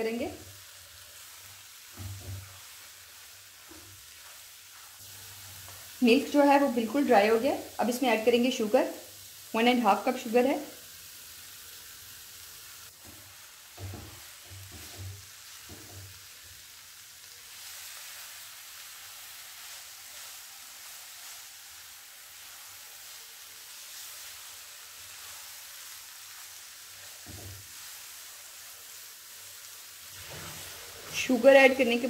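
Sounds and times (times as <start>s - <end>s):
food sizzling in a pan: 0.0s - 32.0s
spatula stirring thumps: 1.8s - 8.0s, 12.9s - 16.2s, 26.3s - 28.3s, 30.1s - 32.0s.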